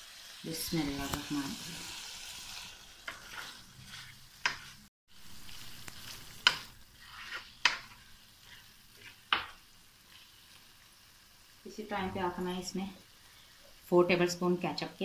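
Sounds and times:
faint sizzle: 0.0 - 15.0
spatula stirring in wok: 0.2 - 10.7
spatula clacking against pan: 4.4 - 4.8, 6.4 - 6.7, 7.6 - 8.0.

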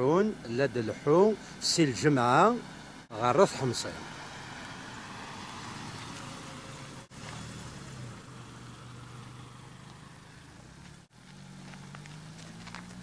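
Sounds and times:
car engine humming: 0.0 - 13.0
road noise: 0.0 - 13.0.

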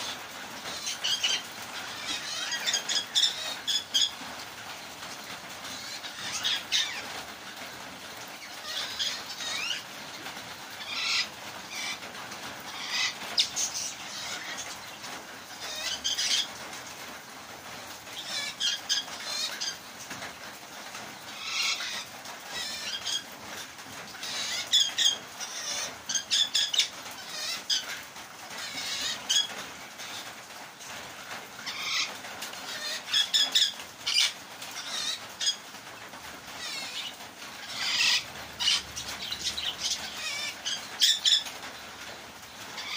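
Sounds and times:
parrot chirps and squawks: 0.0 - 4.2, 5.6 - 7.2, 8.2 - 16.6, 17.8 - 19.9, 21.3 - 23.3, 24.1 - 30.3, 31.6 - 35.7, 36.5 - 42.9
parrots chattering: 0.0 - 7.2, 8.2 - 17.0, 18.1 - 19.9, 21.2 - 30.3, 31.6 - 35.7, 36.5 - 42.9.

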